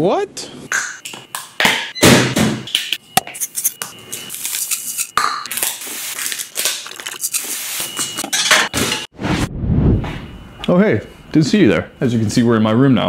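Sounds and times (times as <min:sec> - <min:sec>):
packaging crinkling: 0:05.5 - 0:07.4.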